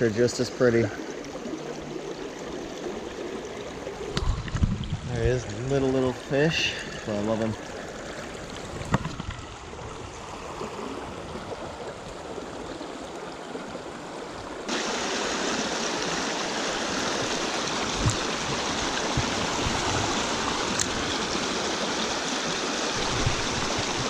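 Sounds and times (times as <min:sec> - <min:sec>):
creek running over rocks: 0:00.0 - 0:24.0.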